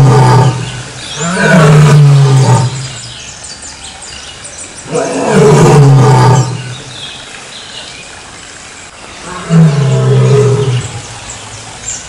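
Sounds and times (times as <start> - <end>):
lion roaring: 0.0 - 2.9, 4.9 - 6.7, 9.2 - 11.0.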